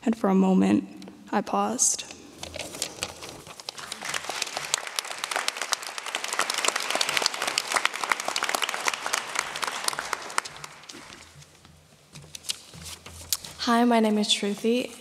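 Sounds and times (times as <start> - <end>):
audience applauding: 3.1 - 11.4.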